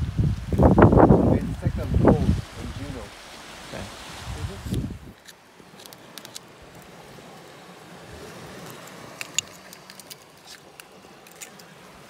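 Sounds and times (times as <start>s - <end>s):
outdoor background noise: 0.0s - 12.0s
oyster shells clicking: 5.2s - 6.9s, 8.6s - 11.7s.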